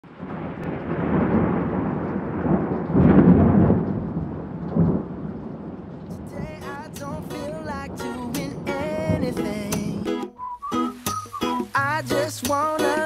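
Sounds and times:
thunder rumbling: 0.0 - 11.8
rain falling: 0.0 - 13.0
guitar music: 6.2 - 13.0.

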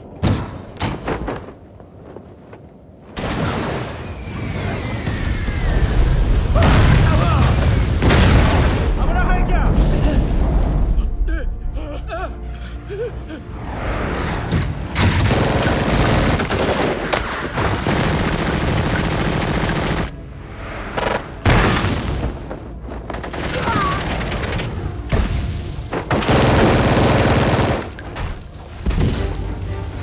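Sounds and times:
booms and crackling: 3.2 - 11.1, 21.0 - 29.2.

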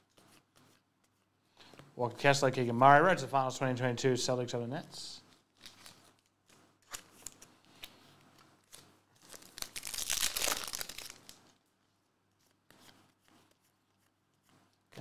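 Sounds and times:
cards being handled: 0.0 - 1.3
wrapper tearing and crinkling: 5.5 - 7.5, 8.7 - 11.5.

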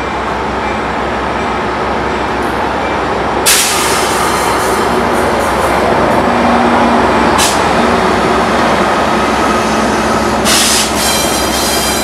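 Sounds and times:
diesel locomotive engine running: 0.0 - 12.0
wheels rumbling on rail: 0.0 - 12.0.

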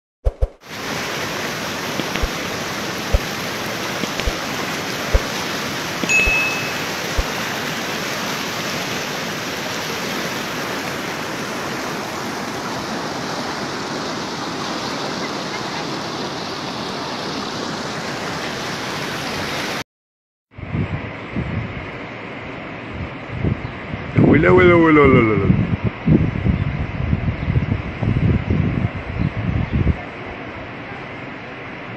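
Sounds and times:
floodwater rushing: 0.6 - 19.8
sharp clicks: 2.0 - 2.4, 4.0 - 4.4
brief high tone: 6.0 - 7.2.

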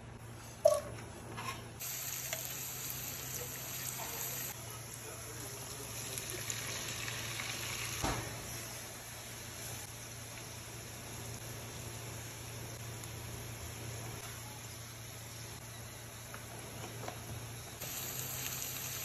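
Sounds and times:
onions sizzling in hot oil: 1.8 - 4.6, 5.3 - 14.0, 17.7 - 19.0.

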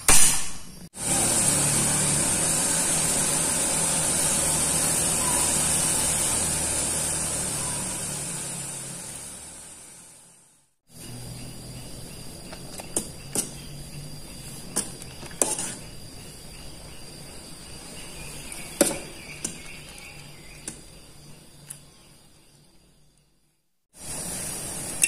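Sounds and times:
water boiling hard: 1.0 - 10.4, 24.0 - 25.0.

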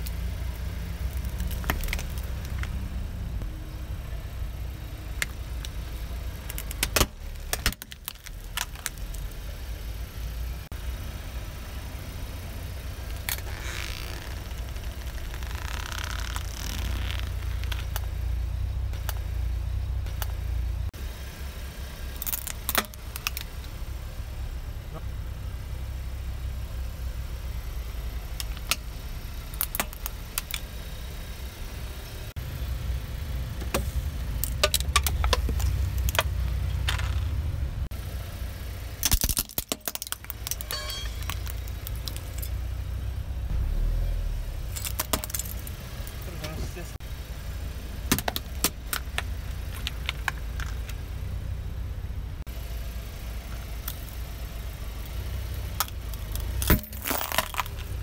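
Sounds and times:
car engine running: 0.0 - 58.0
tyre crushing plastic toys: 1.1 - 2.8, 6.4 - 9.3, 39.0 - 42.6, 44.8 - 45.7, 55.8 - 58.0.

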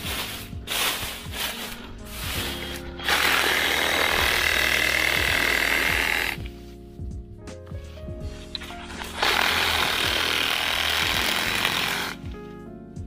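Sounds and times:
dry leaves rustling: 0.0 - 4.4
cordless electric saw cutting: 2.6 - 6.5, 8.6 - 12.2.

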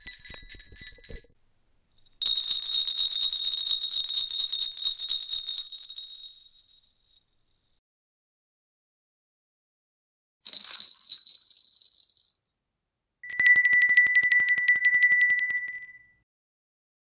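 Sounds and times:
jingle bells shaking: 0.0 - 1.3, 2.2 - 7.2, 10.5 - 12.4, 13.3 - 16.2
small metal bell trilling: 0.0 - 1.3, 2.2 - 7.2, 10.5 - 12.4, 13.2 - 16.2.

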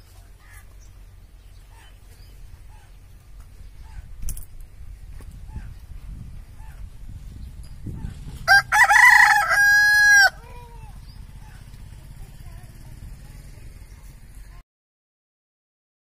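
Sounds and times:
rooster crowing: 8.4 - 10.5.

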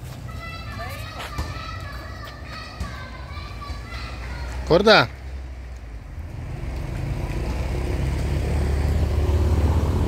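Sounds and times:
road rumble: 0.0 - 10.0
car engine: 3.0 - 10.0.

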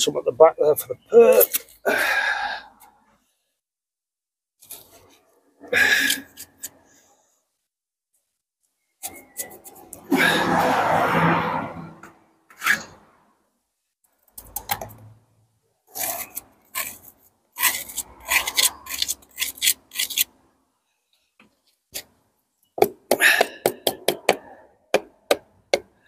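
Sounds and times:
trowel scraping brick: 4.6 - 6.9, 9.0 - 10.4, 15.9 - 20.4.

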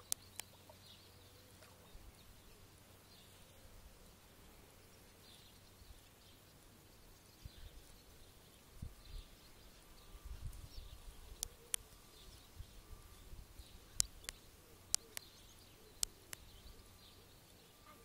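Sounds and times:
faint bird chirps: 0.0 - 18.0
sharp clicks: 11.4 - 11.9, 13.9 - 16.5.

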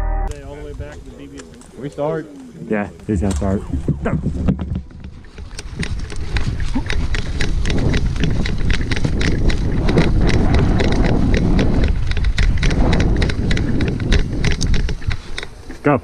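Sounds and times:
wind buffeting microphone: 0.3 - 1.4, 2.0 - 15.8
running footsteps on grass: 2.4 - 15.9
gear rattling: 4.0 - 15.7.

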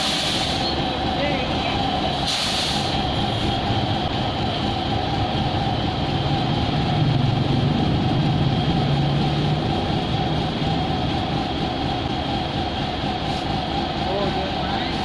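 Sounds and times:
constant whine: 0.0 - 15.0
mixer truck diesel engine: 0.0 - 15.0
motorbikes passing: 3.6 - 14.8.

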